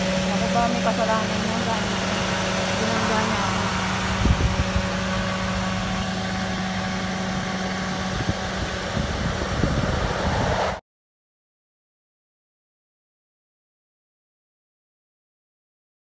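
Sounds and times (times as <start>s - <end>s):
car engine idling: 0.0s - 10.8s
low rumbling: 0.0s - 10.8s.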